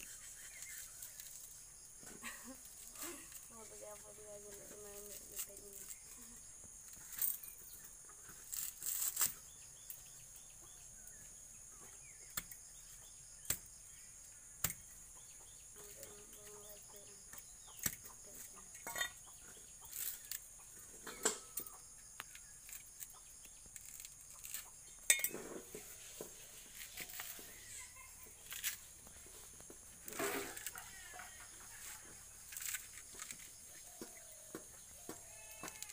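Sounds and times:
coconut husk being torn: 22.2 - 24.7.

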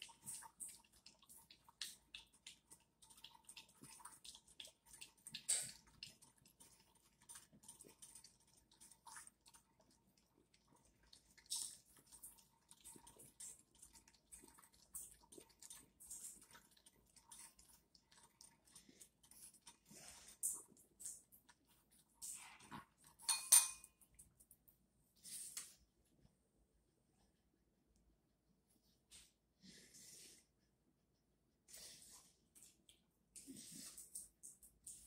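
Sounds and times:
dog lapping water: 0.0 - 23.2
dog slurping: 0.0 - 23.2.

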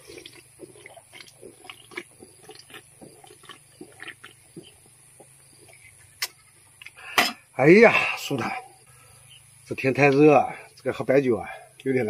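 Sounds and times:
wet mouth sounds: 0.0 - 7.4
man swallowing: 0.0 - 7.5.

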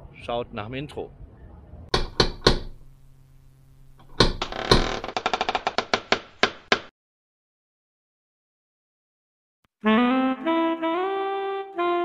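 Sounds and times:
door hinge creaking: 1.9 - 2.9, 3.9 - 6.9.

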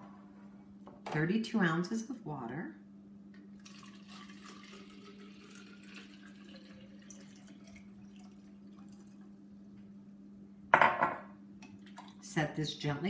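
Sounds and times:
water pouring into bottle: 3.6 - 9.2.

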